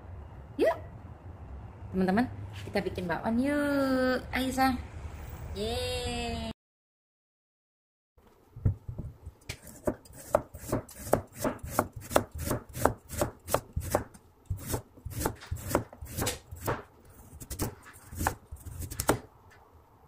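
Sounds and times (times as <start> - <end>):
cleaver chopping on cutting board: 9.6 - 19.3.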